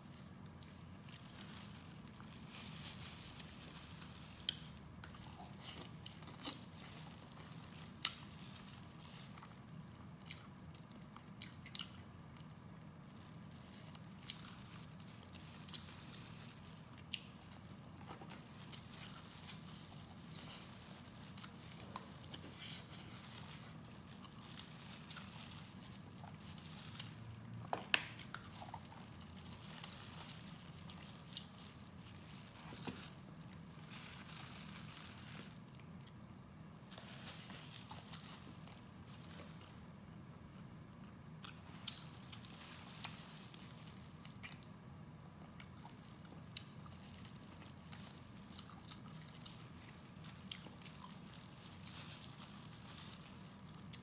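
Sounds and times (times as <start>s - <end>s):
plastic gloves crinkling: 0.0s - 54.0s.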